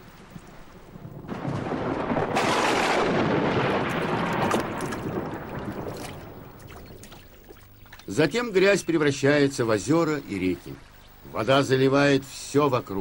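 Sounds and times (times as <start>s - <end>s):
rain falling: 0.0s - 13.0s
thunder rumbling and crackling: 0.4s - 7.5s.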